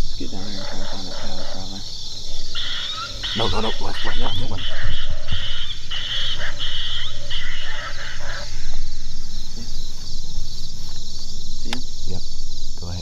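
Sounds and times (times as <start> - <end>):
insects chirring: 0.0 - 13.0
predator game call animal cries: 0.2 - 9.0.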